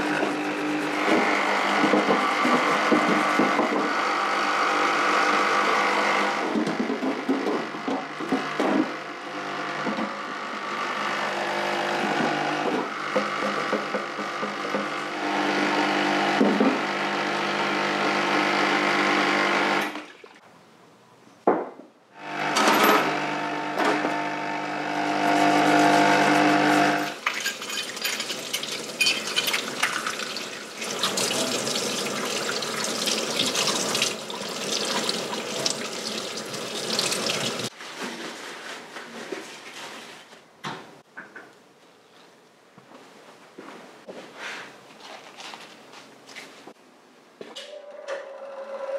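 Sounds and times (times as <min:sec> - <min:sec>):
brush scrubbing metal parts: 0:00.0 - 0:03.3, 0:25.3 - 0:31.7
pump humming: 0:28.3 - 0:37.7.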